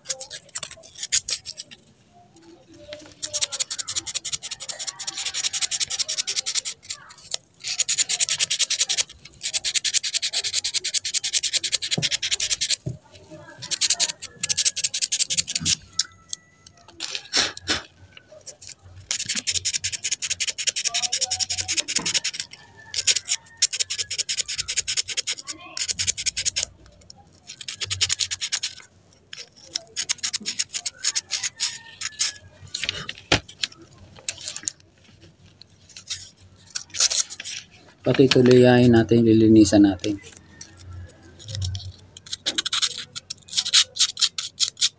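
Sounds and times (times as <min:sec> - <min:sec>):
hand rubbing metal part: 0:00.0 - 0:44.9.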